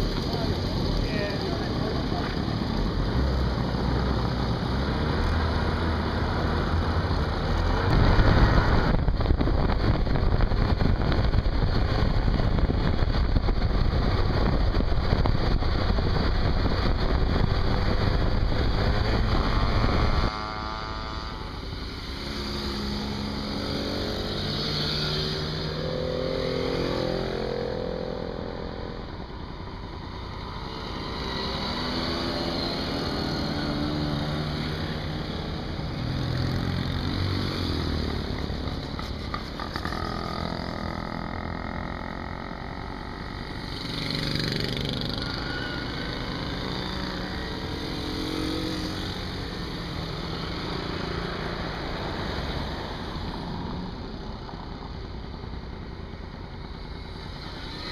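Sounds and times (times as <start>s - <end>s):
moped engines passing: 16.9s - 28.9s, 30.4s - 55.1s.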